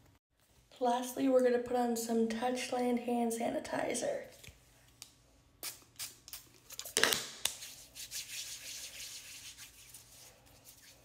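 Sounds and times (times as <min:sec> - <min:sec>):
hands rubbing together: 0:07.5 - 0:11.0.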